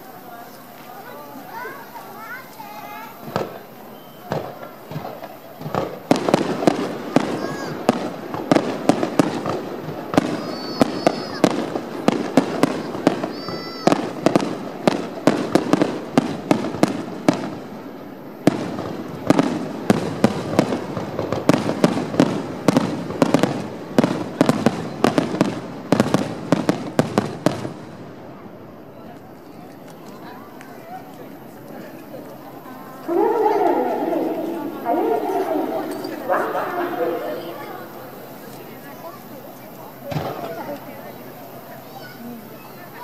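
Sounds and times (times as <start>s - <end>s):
fireworks bangs and crackles: 0.1s - 43.0s.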